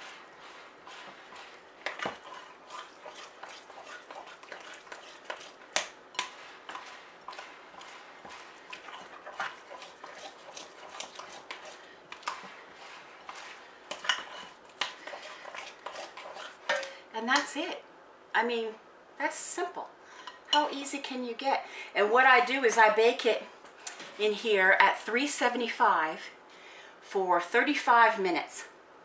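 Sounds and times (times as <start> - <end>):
utensil scraping glass bowl: 0.0 - 16.9.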